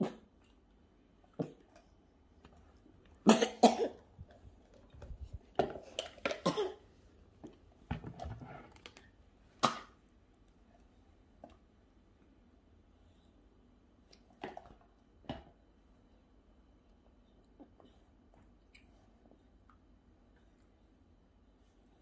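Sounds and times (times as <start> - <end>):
person coughing: 3.2 - 4.0, 6.3 - 6.8.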